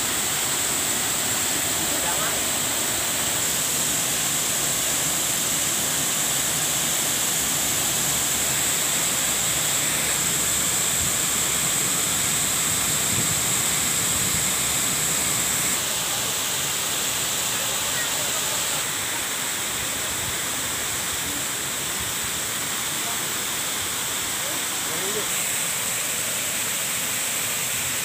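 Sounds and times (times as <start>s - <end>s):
waterfall rushing into pool: 0.0s - 28.0s.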